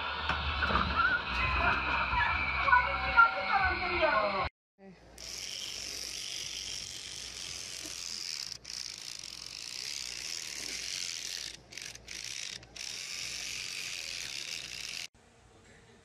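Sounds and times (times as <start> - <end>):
electric toothbrush buzzing: 5.2 - 15.1.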